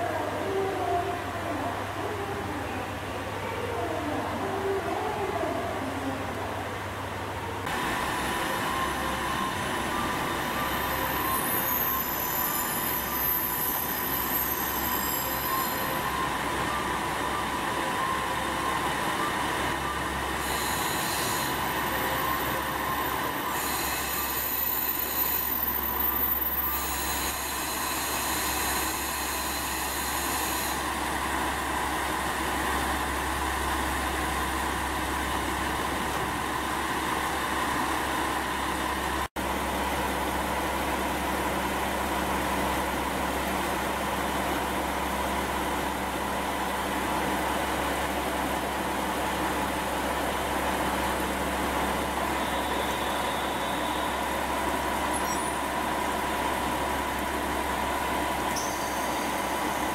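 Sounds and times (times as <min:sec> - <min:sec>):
wheel and brake squeal: 0:08.3 - 0:31.1, 0:52.0 - 0:56.1, 0:58.4 - 0:59.9.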